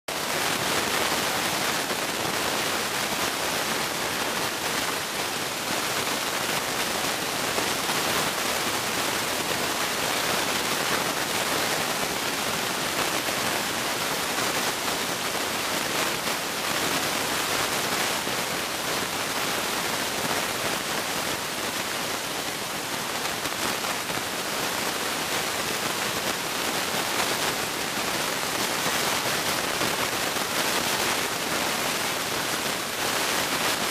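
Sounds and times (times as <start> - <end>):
steady hiss: 0.2 - 33.9.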